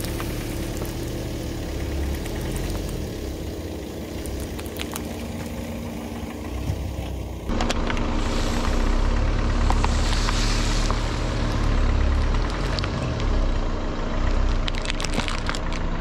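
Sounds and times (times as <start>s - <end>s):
car engine idling: 0.0s - 16.0s
plastic bottle crackling: 3.9s - 5.7s, 14.5s - 15.9s.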